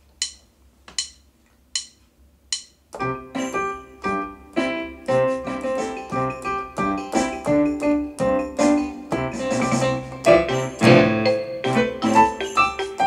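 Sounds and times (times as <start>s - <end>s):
sharp clicks: 0.2s - 2.8s
electronic keyboard tune: 3.0s - 13.0s.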